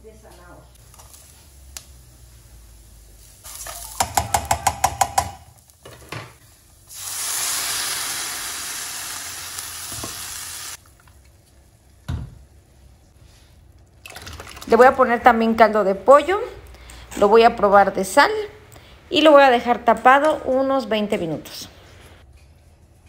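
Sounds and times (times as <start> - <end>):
liquid sizzling on hot rice: 0.8 - 4.9, 5.5 - 11.9.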